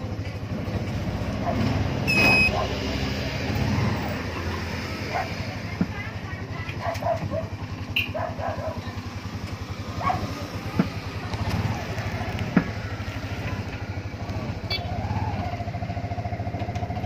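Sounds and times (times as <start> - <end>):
auto-rickshaw engine running: 0.0 - 17.0
held higher tone: 2.1 - 2.6.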